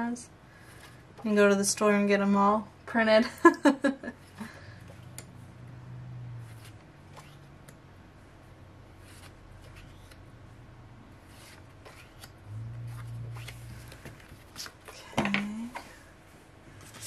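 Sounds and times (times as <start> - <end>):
low steady hum: 0.0 - 17.0
paper rustling: 11.2 - 15.0.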